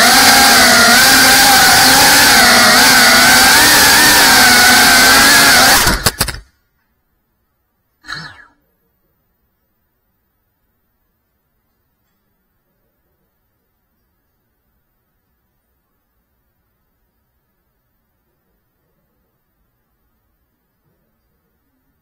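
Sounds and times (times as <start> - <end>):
drone motors whining: 0.0 - 6.4.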